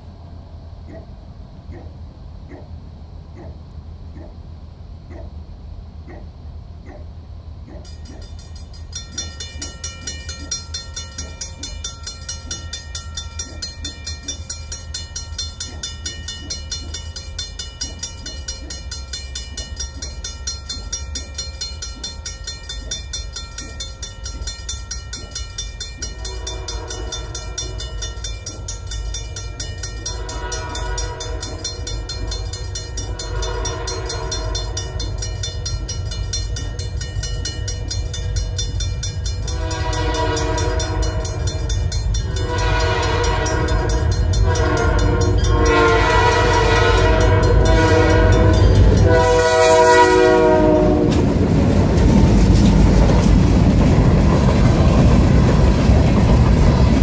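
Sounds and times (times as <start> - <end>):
approaching train rumble: 0.0 - 57.0
railroad crossing bell ringing: 7.8 - 57.0
train horn blasts: 26.0 - 28.5, 30.0 - 35.3, 39.4 - 41.6, 42.2 - 51.3.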